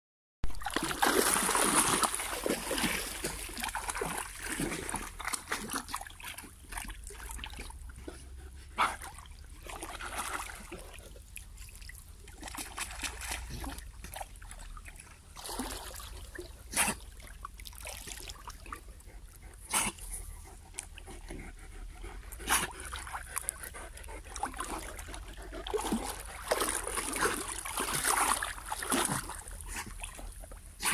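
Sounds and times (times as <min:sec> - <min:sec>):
short sharp splashes: 0:00.5 - 0:06.0, 0:25.7 - 0:30.2
dogs splashing through water: 0:00.5 - 0:21.4, 0:22.2 - 0:30.9.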